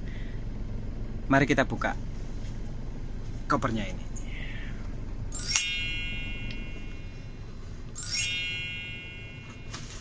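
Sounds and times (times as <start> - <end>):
sparkling chime: 5.4 - 7.3, 8.0 - 10.0.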